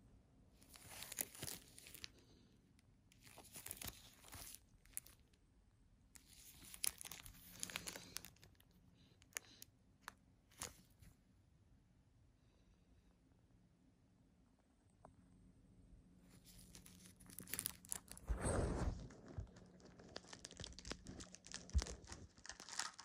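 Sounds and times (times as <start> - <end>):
plastic shrink-wrap crinkling: 0.6 - 2.3, 3.1 - 5.3, 6.2 - 11.0, 16.3 - 23.0.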